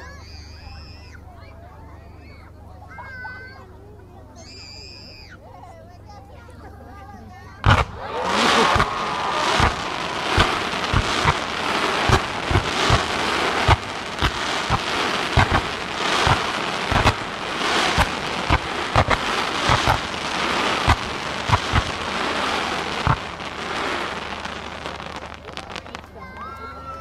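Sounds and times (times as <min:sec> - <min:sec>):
fireworks hissing and crackling: 0:00.0 - 0:01.2, 0:07.3 - 0:27.0
firework mortars thumping: 0:07.6 - 0:26.1.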